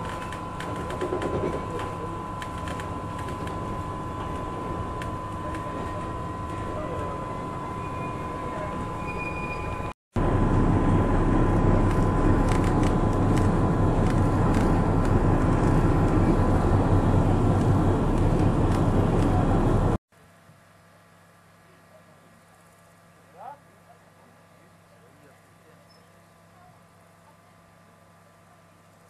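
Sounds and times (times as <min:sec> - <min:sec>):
electric railcar running: 0:00.0 - 0:20.0
thin steady whine: 0:00.0 - 0:27.6.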